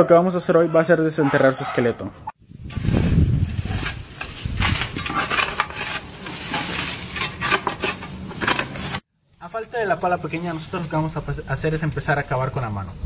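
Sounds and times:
leaves rustling: 2.4s - 13.0s
hands digging in soil: 2.6s - 9.0s.

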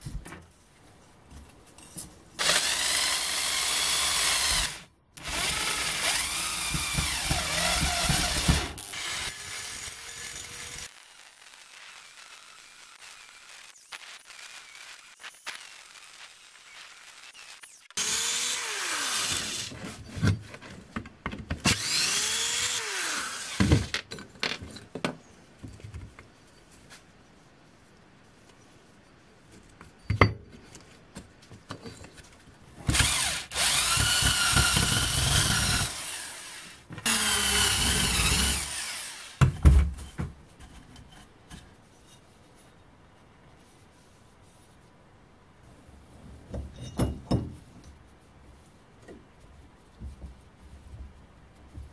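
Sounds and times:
electric drill boring into steel: 2.4s - 19.7s, 21.7s - 23.6s, 32.9s - 39.4s.

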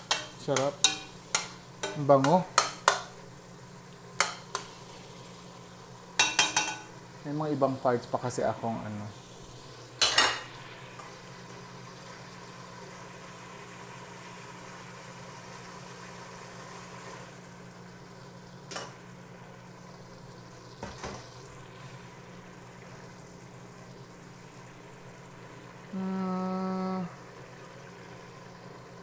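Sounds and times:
spoon knocking on pot: 0.0s - 3.1s, 6.2s - 6.9s
food sizzling in a pot: 0.0s - 29.0s.

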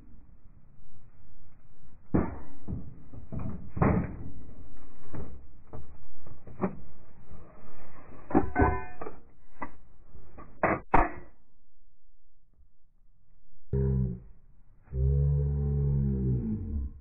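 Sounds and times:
metallic clanks and knocks: 8.3s - 9.2s
low rumble: 11.6s - 17.0s.

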